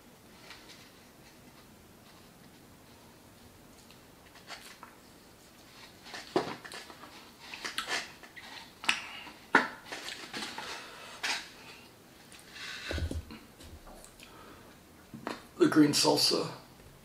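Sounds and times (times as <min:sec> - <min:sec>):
mouth chewing and smacking: 0:07.5 - 0:09.1.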